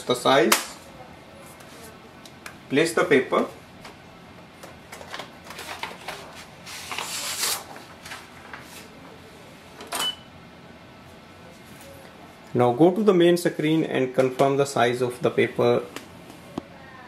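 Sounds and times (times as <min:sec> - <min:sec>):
paper rustling and sliding: 0:05.1 - 0:09.0.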